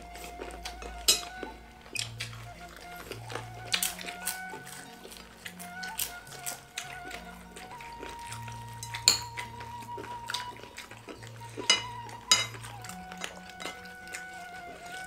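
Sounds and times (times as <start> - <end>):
background music: 0.0 - 15.0
spoons clinking on ceramic: 1.1 - 1.3, 8.8 - 9.4, 11.6 - 12.6, 13.2 - 13.8.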